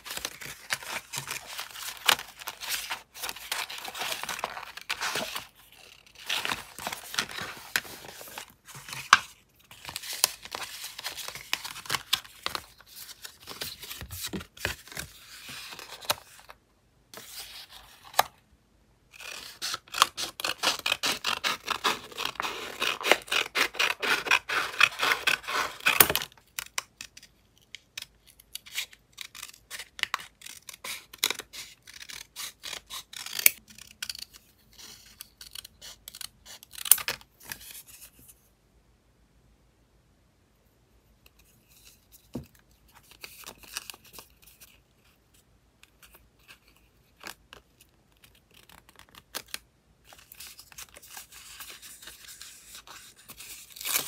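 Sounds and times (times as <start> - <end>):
scissors snipping paper: 27.8 - 34.4.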